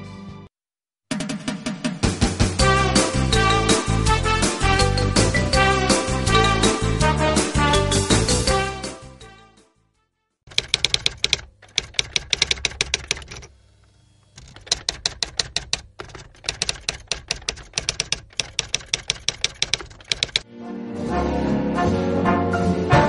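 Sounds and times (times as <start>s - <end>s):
typewriter keys clacking: 10.5s - 13.5s, 14.4s - 20.4s.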